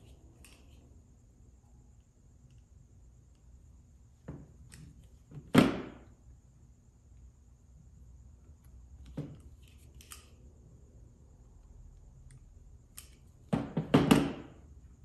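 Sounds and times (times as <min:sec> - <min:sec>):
wire cutters snipping: 0:09.6 - 0:10.3
light tool clicks: 0:12.2 - 0:13.3.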